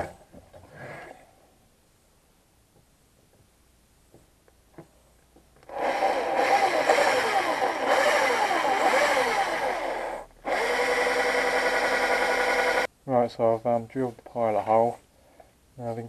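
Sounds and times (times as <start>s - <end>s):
cordless drill drilling: 5.6s - 12.9s.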